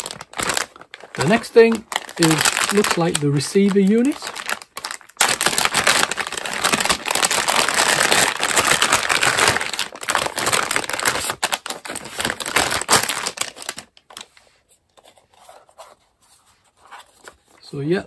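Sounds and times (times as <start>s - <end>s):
plastic bag crinkling: 0.0s - 14.4s.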